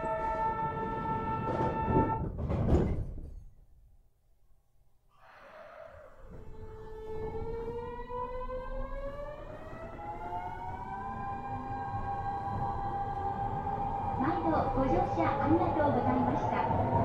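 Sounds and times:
train motor whine rising: 5.2 - 17.0.

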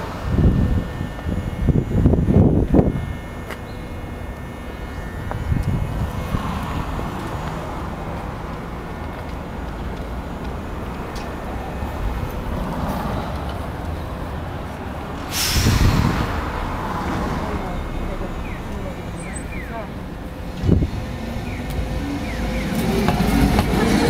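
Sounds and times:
city street traffic: 0.0 - 24.0
air hissing with low rumble: 14.8 - 17.0.

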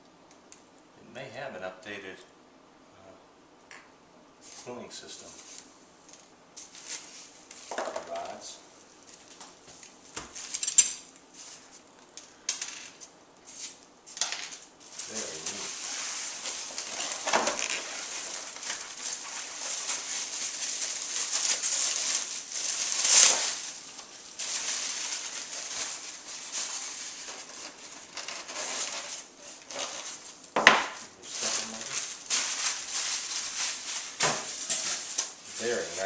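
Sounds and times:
plastic wrap crinkling: 5.2 - 12.2, 14.5 - 36.0.

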